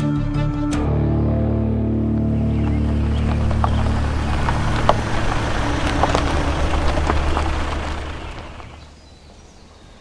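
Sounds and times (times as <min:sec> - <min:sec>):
low held drone music: 0:00.0 - 0:08.8.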